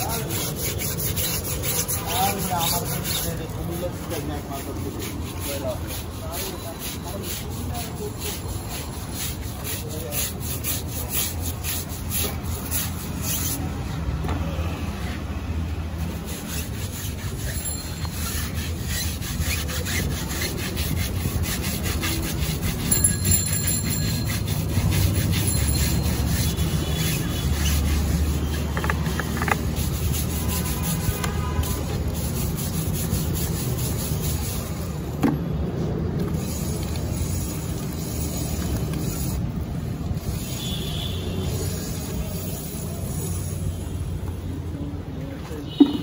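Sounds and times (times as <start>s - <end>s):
plastic brush scrubbing: 0.0s - 14.0s, 15.8s - 40.8s.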